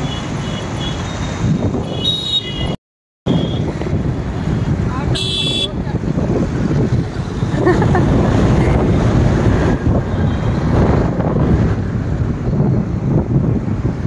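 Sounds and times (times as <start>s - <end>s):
road and traffic noise: 0.0s - 14.0s
wind buffeting microphone: 3.3s - 14.0s.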